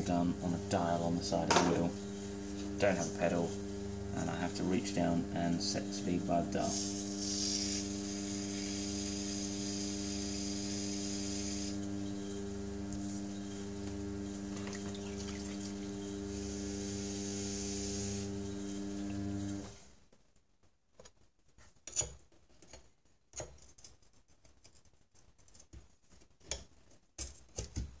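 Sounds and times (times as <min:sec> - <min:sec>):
pottery wheel motor humming: 0:00.0 - 0:19.8.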